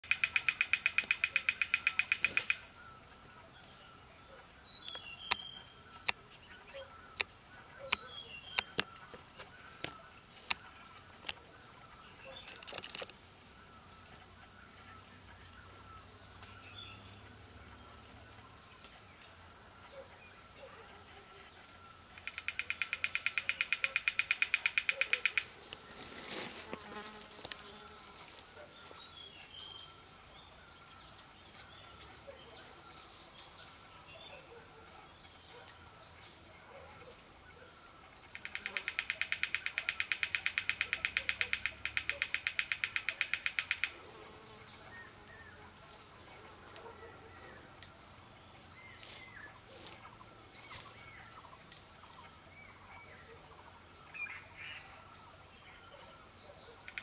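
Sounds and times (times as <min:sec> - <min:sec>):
woodpecker tapping on bamboo: 0:00.0 - 0:02.6, 0:12.3 - 0:13.2, 0:22.2 - 0:25.8, 0:38.3 - 0:44.0
high insect drone: 0:00.0 - 0:57.0
fast pulsing insect buzz: 0:22.2 - 0:28.6.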